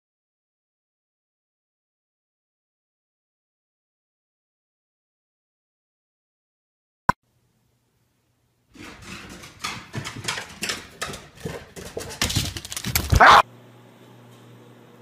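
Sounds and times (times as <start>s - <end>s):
dog steps on wooden stairs: 8.8s - 13.3s.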